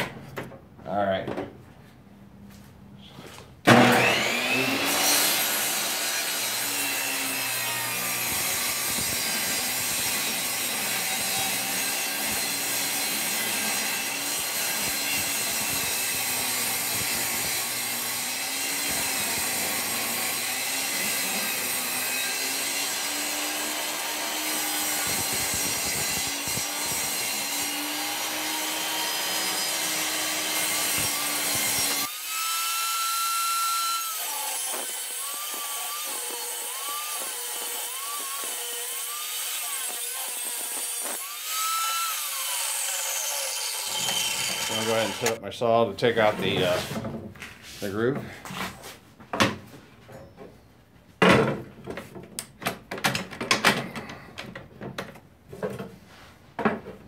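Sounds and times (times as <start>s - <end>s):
table saw cutting wood: 3.6s - 45.4s, 46.0s - 47.0s.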